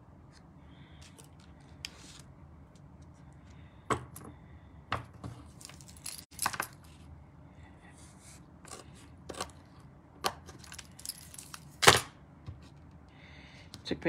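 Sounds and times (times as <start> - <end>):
paper rustling: 0.3 - 2.3.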